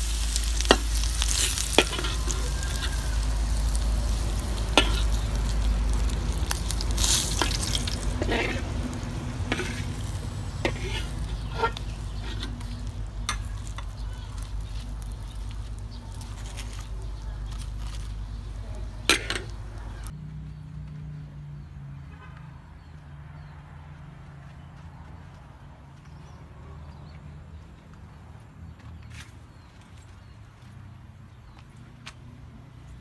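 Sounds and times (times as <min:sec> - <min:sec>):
oil sizzling in a wok: 0:00.0 - 0:16.3
metal spatula scraping a pan: 0:00.2 - 0:05.3, 0:06.4 - 0:14.7, 0:19.1 - 0:19.5.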